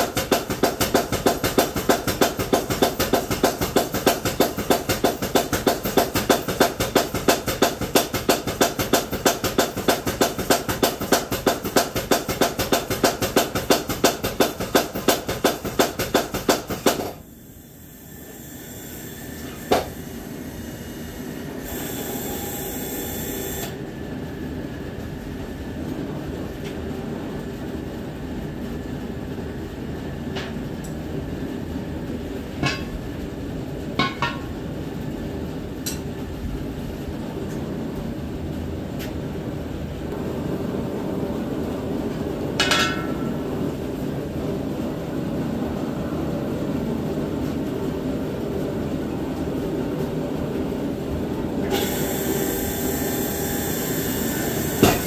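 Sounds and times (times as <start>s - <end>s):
hammer blows on steel: 54.7s - 55.0s
sharp knock: 54.8s - 55.0s.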